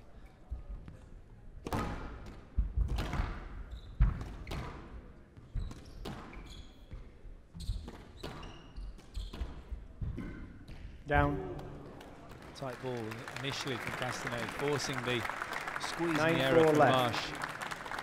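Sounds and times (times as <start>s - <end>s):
squash ball hitting rackets and walls: 1.6s - 7.0s, 7.6s - 11.0s
shoes squeaking on court floor: 5.4s - 9.8s.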